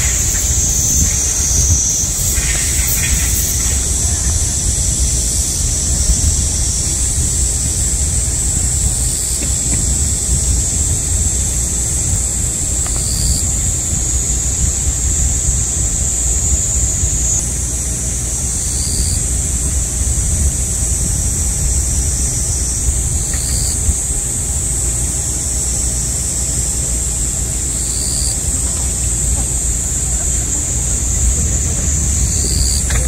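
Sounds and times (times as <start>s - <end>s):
short insect buzzes: 0.0s - 5.7s
low rumble: 0.0s - 17.4s, 28.4s - 33.0s
cicadas droning: 0.0s - 33.0s.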